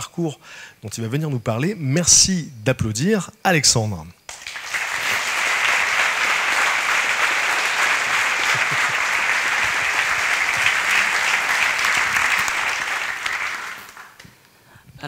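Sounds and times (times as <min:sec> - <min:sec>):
audience applauding: 0:04.3 - 0:14.4.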